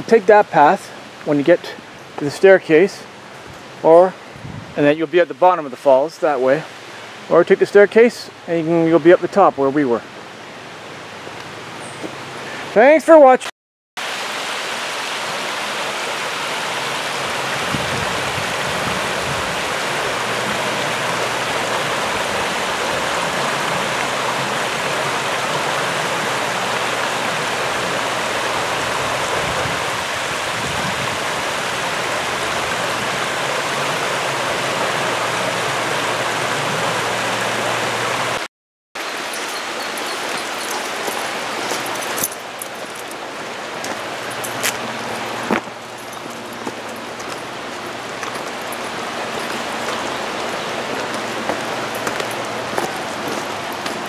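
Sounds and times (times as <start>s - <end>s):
water rippling over rocks: 14.0s - 38.4s, 39.0s - 54.0s.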